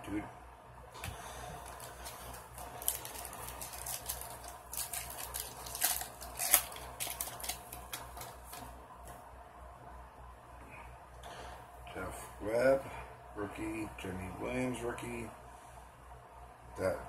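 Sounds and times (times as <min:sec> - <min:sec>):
foil wrapper crinkling and tearing: 0:01.6 - 0:08.7.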